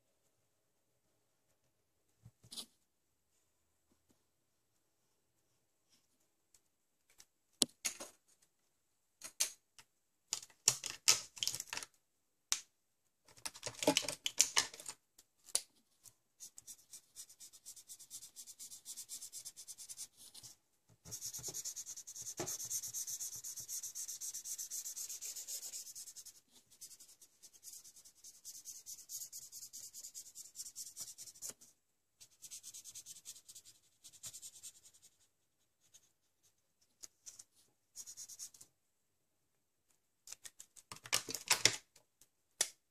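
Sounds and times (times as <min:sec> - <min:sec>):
felt-tip marker scribbling on paper: 0:21.1 - 0:31.6.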